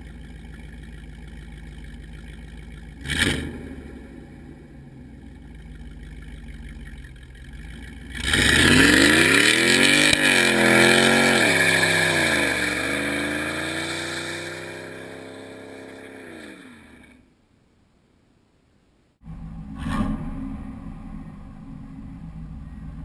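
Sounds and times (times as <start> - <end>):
tires spinning: 0.0 - 17.2
car engine revving and accelerating: 3.0 - 5.5, 7.4 - 17.1.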